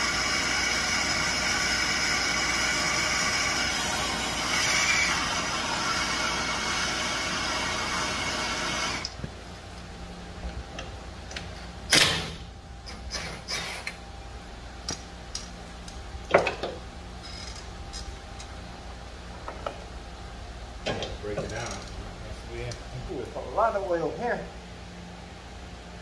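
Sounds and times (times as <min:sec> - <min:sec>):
gas torch hissing: 0:00.0 - 0:09.2.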